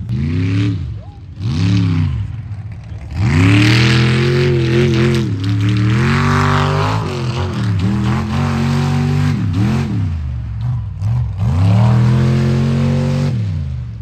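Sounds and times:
truck engine revving: 0.0 - 14.0.

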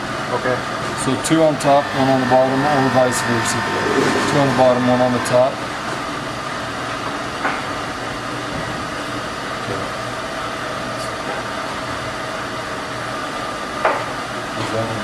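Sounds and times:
machine hum: 0.0 - 14.5.

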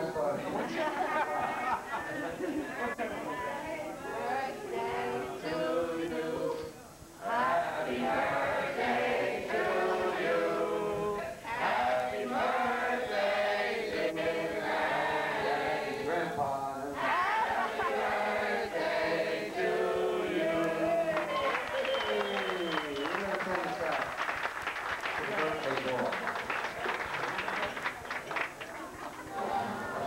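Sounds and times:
choir singing: 3.0 - 16.4, 17.0 - 21.2.

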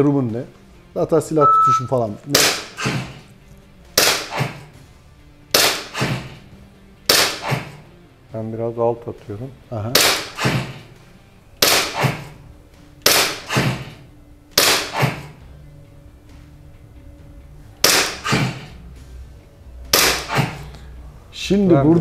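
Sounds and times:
airsoft pistol shots: 2.3 - 3.2, 4.0 - 4.7, 5.5 - 6.4, 7.0 - 7.8, 10.0 - 10.8, 11.6 - 12.4, 13.0 - 15.3, 17.8 - 18.7, 19.9 - 20.6.

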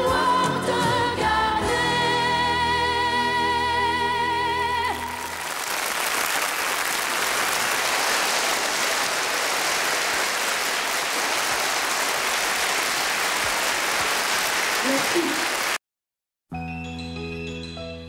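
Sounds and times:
audience applauding: 4.9 - 15.8.

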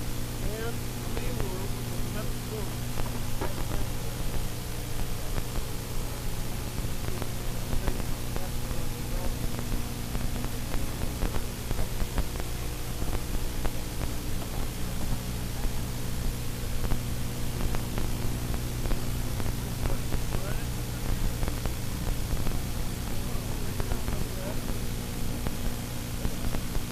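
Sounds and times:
constant hiss: 0.0 - 26.9.

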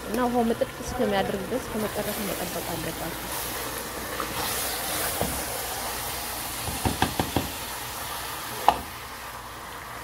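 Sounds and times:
food sizzling: 0.0 - 10.0
spoon knocking against pot: 6.7 - 7.5.

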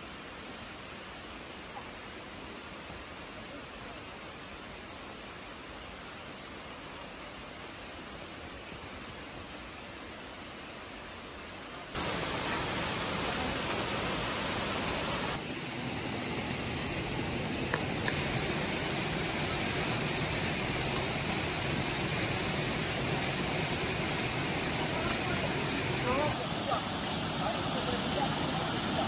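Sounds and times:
river water rushing over boulders: 11.4 - 29.0.

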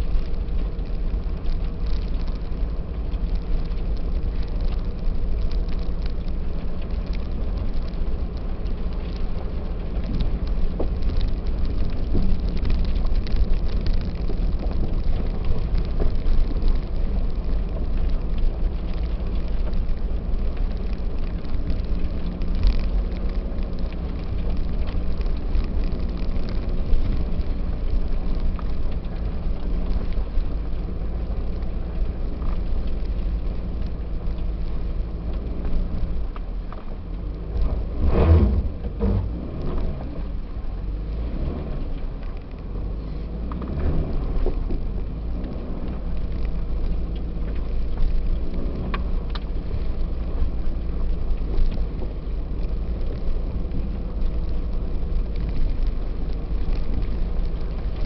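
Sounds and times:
car engine and tyres rumbling: 0.0 - 58.0
gravel ticks and crackles: 0.0 - 58.0.

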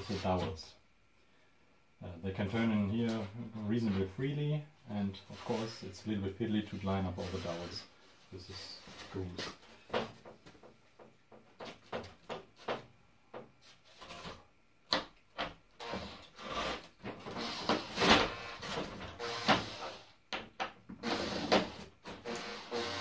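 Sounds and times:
foam panels knocking and rubbing: 8.9 - 15.6
cordless drill driving screws: 19.2 - 20.0, 21.0 - 23.0.

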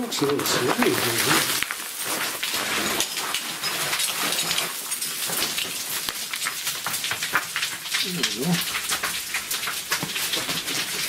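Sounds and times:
boots crunching on loose gravel: 0.2 - 2.2.

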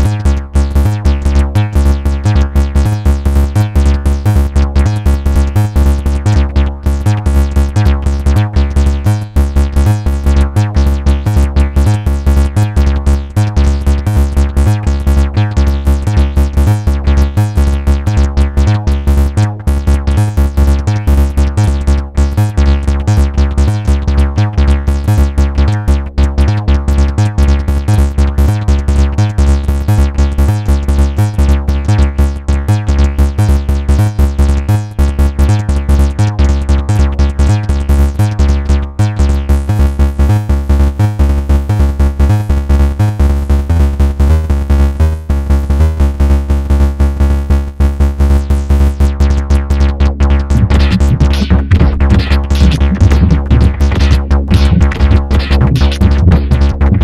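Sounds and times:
kick drum pulse: 0.0 - 26.8, 48.4 - 57.0
repeating synth tones: 50.2 - 57.0.

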